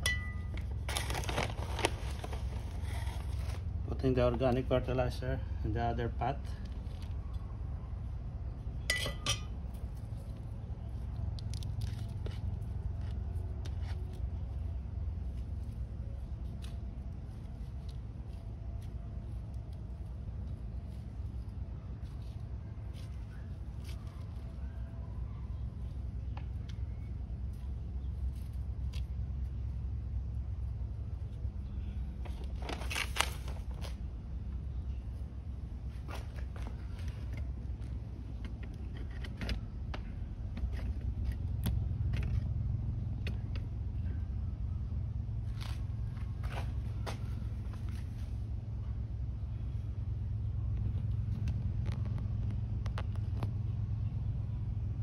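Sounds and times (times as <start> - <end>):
crackling rustle of soil and plants: 0.0 - 44.2, 45.2 - 55.0
steady low rumble: 0.0 - 55.0
hands rustling fertilizer in soil: 0.4 - 4.9, 30.6 - 38.0.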